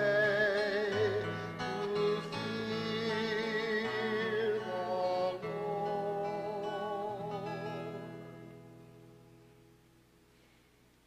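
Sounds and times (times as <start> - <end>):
person singing with vibrato: 0.0 - 8.3.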